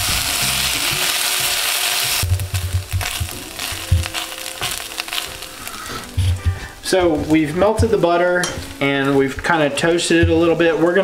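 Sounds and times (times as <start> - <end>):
butter sizzling in a saucepan: 0.0 - 11.0
spatula scraping a pan: 3.0 - 6.8.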